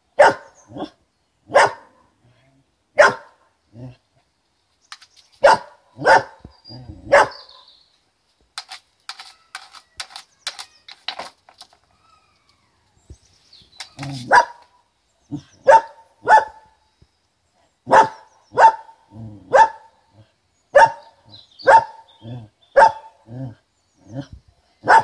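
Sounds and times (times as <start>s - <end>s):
dog barking: 0.2s - 2.1s, 3.0s - 3.4s, 5.4s - 6.4s, 7.1s - 7.7s, 14.2s - 14.6s, 15.6s - 16.6s, 17.9s - 19.9s, 20.7s - 22.0s, 22.8s - 23.2s.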